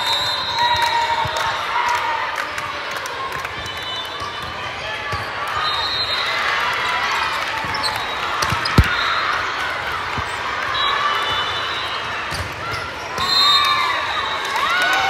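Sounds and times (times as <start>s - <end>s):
shoes squeaking on gym floor: 7.6s - 9.3s.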